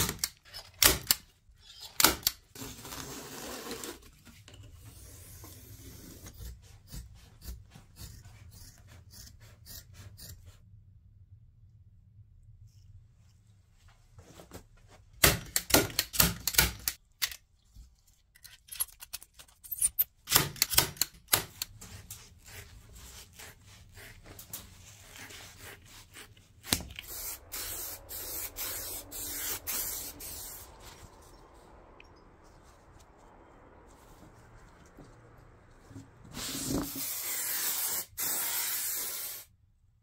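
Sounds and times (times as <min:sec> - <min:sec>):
scissors cutting foam: 0:00.0 - 0:04.1, 0:04.9 - 0:10.6, 0:19.8 - 0:30.7.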